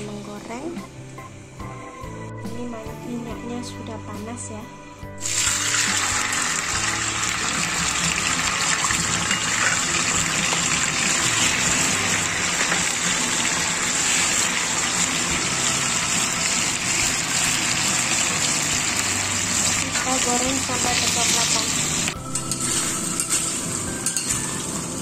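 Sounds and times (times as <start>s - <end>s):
tofu sizzling in hot oil: 5.2s - 25.0s.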